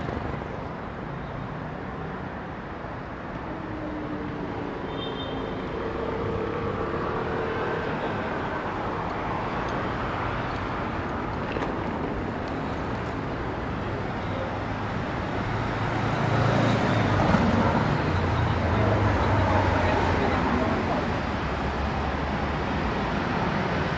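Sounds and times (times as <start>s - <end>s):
passing cars rumble: 5.4s - 23.9s.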